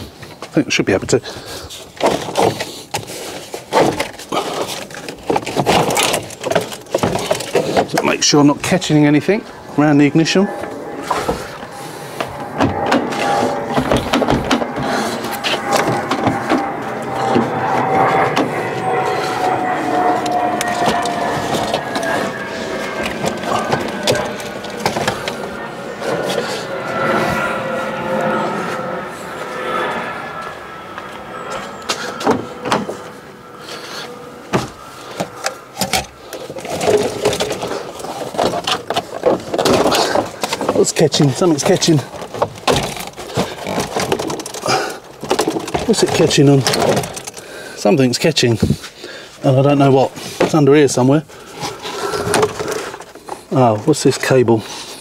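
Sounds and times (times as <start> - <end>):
plastic rattling: 2.0 - 8.0, 35.2 - 47.4
plastic trim knocking and scraping: 3.7 - 8.0
plastic dashboard clicks and scrapes: 34.6 - 47.4.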